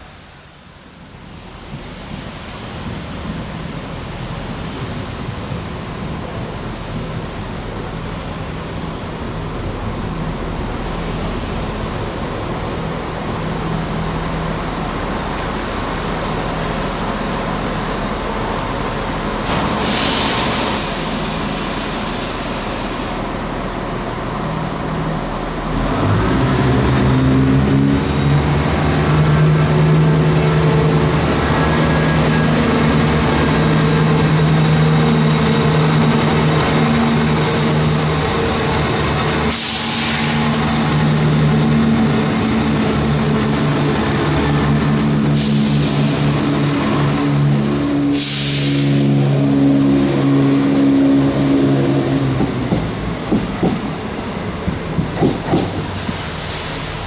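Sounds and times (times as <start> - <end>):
diesel engine: 0.0 - 57.0
train air hiss: 7.8 - 9.5, 19.3 - 23.6, 39.3 - 41.6, 45.2 - 52.0.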